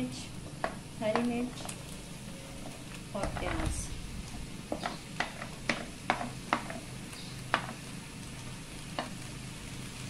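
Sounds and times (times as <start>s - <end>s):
low steady hum: 0.0s - 10.0s
wooden spoon tapping a wok: 0.5s - 1.8s, 4.6s - 7.9s, 8.9s - 9.3s.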